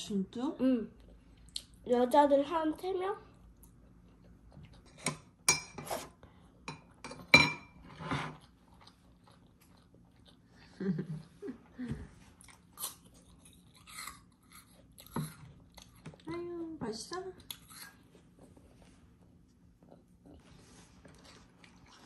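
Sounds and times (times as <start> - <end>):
person chewing: 3.6 - 5.3, 8.3 - 11.0, 12.3 - 16.2, 17.5 - 18.0, 19.8 - 22.0.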